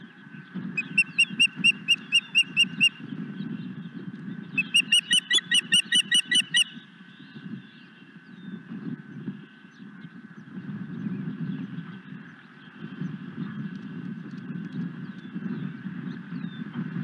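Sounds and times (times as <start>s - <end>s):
osprey whistled chirps: 0.8s - 3.0s, 4.6s - 6.7s.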